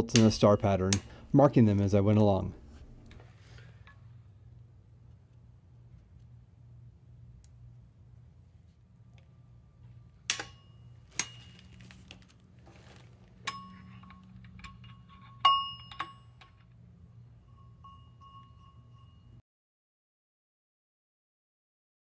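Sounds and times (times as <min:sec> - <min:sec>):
metal bar clinking on flywheel: 0:13.4 - 0:16.8.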